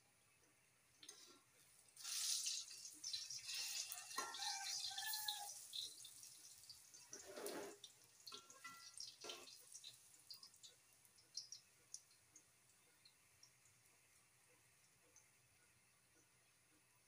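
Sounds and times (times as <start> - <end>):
oil sizzling and crackling: 1.0 - 14.4.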